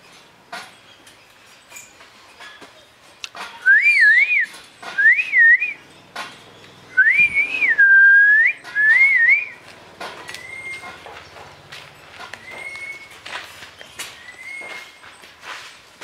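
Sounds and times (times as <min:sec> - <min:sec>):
person whistling: 0:03.6 - 0:05.8, 0:07.0 - 0:09.6.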